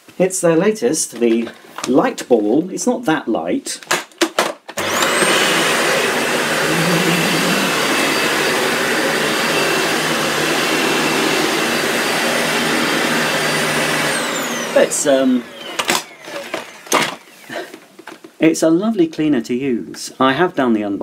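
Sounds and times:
vacuum cleaner motor whine: 4.8 - 17.8.

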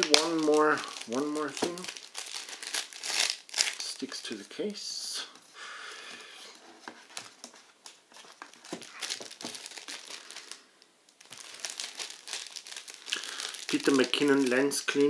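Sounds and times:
plastic sleeve crinkling: 0.0 - 4.8, 6.5 - 15.0.

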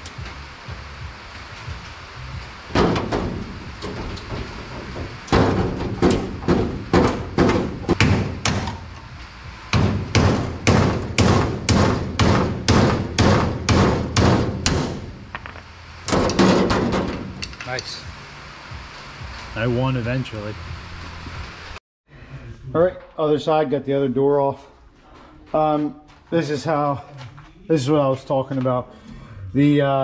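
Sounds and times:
heavy blows on steel door: 2.7 - 8.7, 9.7 - 15.3, 16.1 - 17.4.

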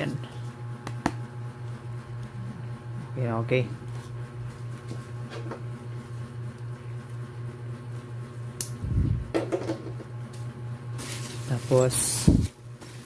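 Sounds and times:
steady low hum: 0.0 - 13.0
plastic packaging handled: 11.0 - 13.0.

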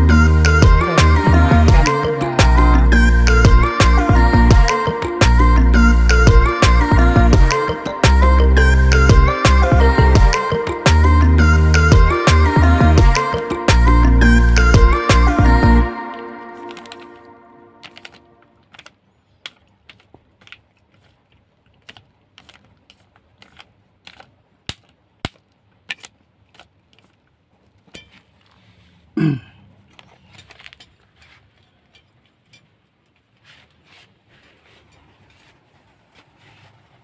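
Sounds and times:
cat crunching kibble: 17.8 - 29.1.

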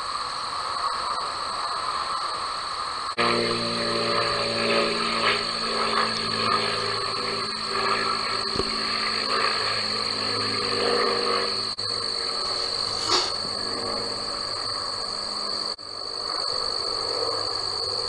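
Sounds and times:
frogs croaking: 0.0 - 18.0
high-pitched whine: 0.0 - 18.0
low steady hum: 3.2 - 15.8.

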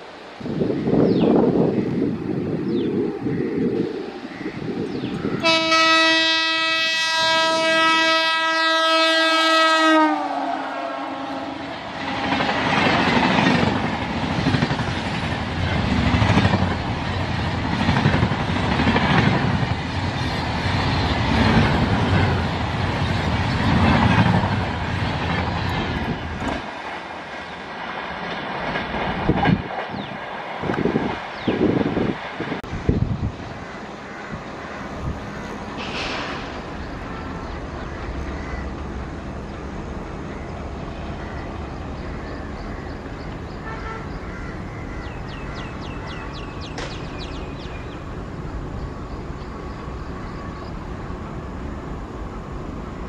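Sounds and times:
locomotive horn blast: 5.4 - 12.3, 43.6 - 44.3
train wheel clatter: 11.9 - 32.6, 35.6 - 37.1.

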